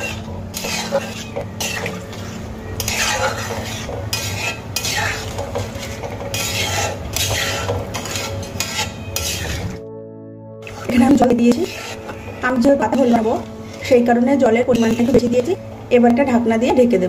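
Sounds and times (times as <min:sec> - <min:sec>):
liquid sloshing: 0:00.0 - 0:09.8
metal spatula scraping pan: 0:00.0 - 0:09.8, 0:10.6 - 0:15.6.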